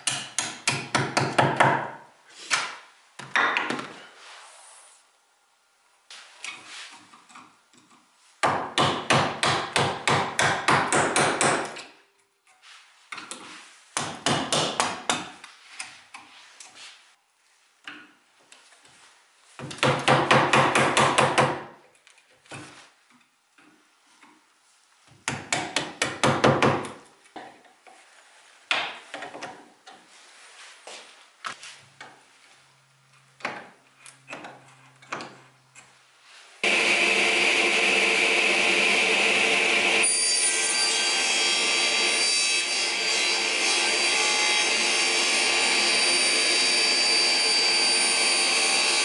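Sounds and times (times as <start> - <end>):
wood chisel strikes: 0.0 - 2.0, 8.4 - 11.9, 14.0 - 15.4, 19.6 - 21.7, 25.2 - 27.5.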